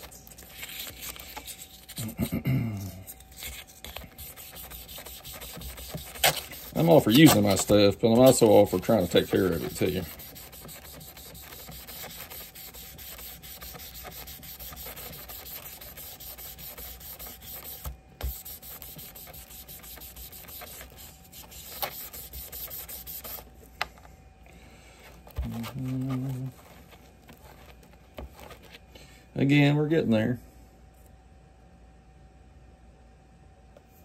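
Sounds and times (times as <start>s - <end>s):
hand rubbing metal: 0.0s - 23.4s.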